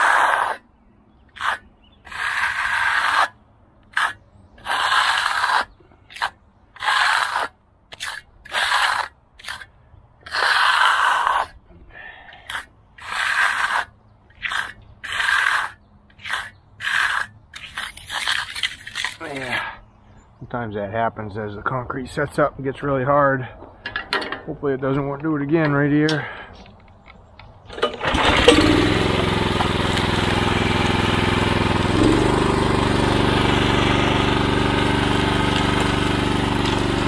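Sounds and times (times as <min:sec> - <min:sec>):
metal float scraping concrete: 0:00.0 - 0:00.7, 0:01.3 - 0:11.6, 0:12.4 - 0:19.8, 0:27.7 - 0:37.0.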